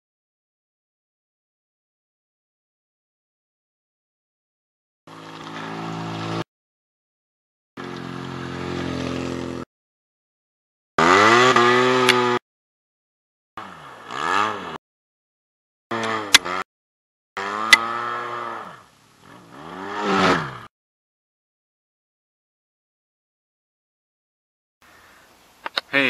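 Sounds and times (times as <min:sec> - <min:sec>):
vehicle engine running: 0:05.1 - 0:06.4, 0:07.8 - 0:09.6.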